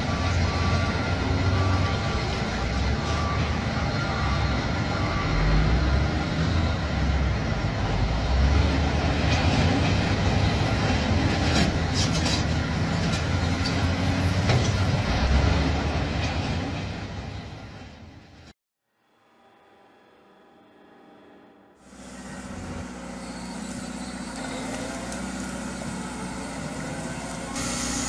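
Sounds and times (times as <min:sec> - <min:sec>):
forklift engine running: 0:00.0 - 0:16.2, 0:21.8 - 0:28.0
hydraulics working: 0:21.9 - 0:28.0.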